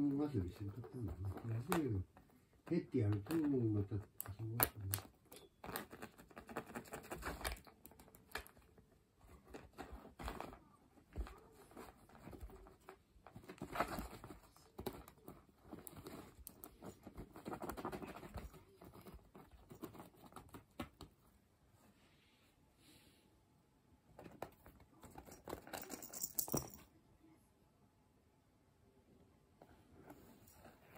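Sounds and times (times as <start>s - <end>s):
cat scratching fabric: 0.0s - 22.0s.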